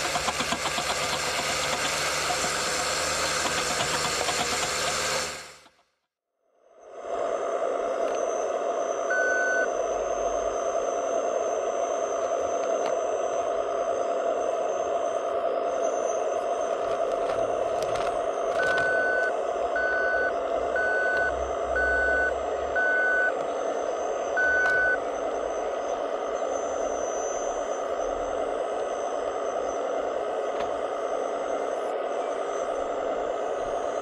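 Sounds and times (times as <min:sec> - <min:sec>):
toy truck motor running: 0:00.0 - 0:05.8
reversing beeper: 0:08.1 - 0:13.3, 0:18.3 - 0:28.3.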